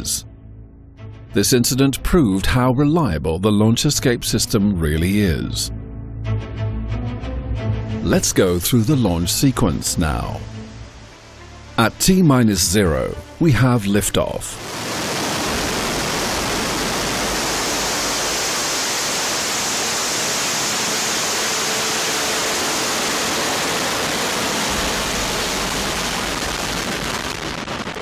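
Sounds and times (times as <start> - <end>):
rocket lifting off: 14.6 - 28.0.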